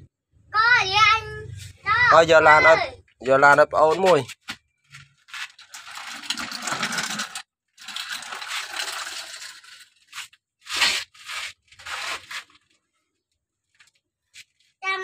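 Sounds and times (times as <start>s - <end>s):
toy excavator scraping dry soil: 5.2s - 12.6s.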